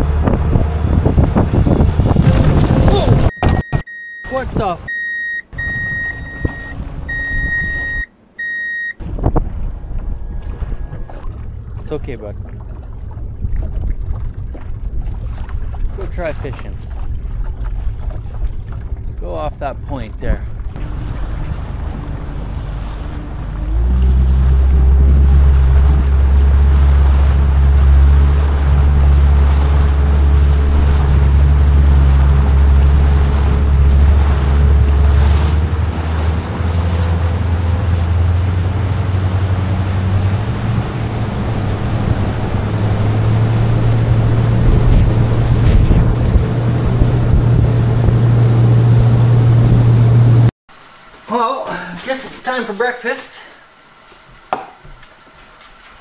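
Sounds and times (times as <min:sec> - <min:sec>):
wind buffeting microphone: 0:00.0 - 0:03.6, 0:09.0 - 0:20.8, 0:23.8 - 0:50.5
outboard motor running: 0:00.0 - 0:50.5.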